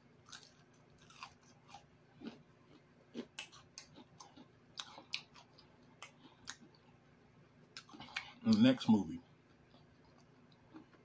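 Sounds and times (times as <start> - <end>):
person chewing crunchy chips: 0.1 - 7.0, 7.7 - 8.8, 9.5 - 11.0.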